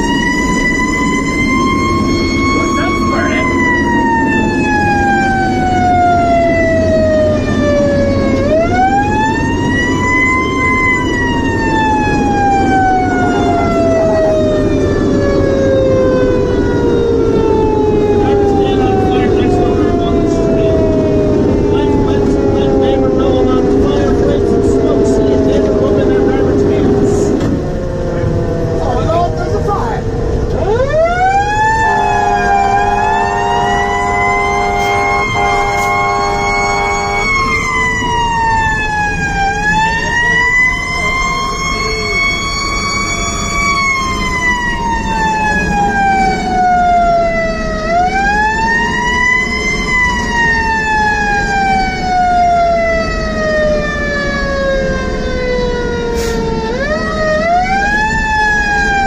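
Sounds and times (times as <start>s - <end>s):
fire engine siren wailing: 0.0s - 59.0s
road noise: 0.0s - 59.0s
truck engine: 0.0s - 59.0s
horn blast: 31.6s - 37.8s.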